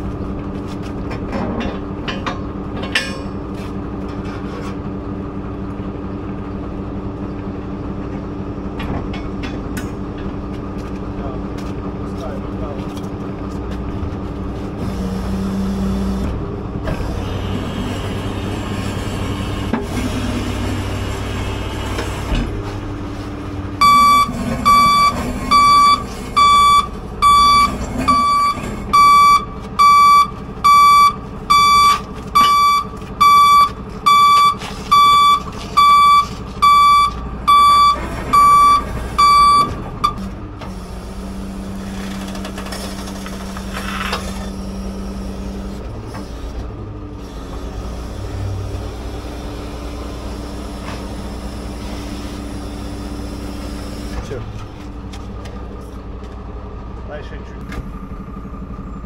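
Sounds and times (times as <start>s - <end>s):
truck engine running: 0.0s - 59.0s
reversing alarm beeping: 23.8s - 40.3s.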